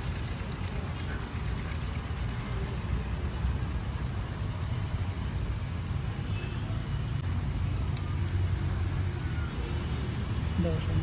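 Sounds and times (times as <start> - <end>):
low outdoor background rumble: 0.0 - 11.0.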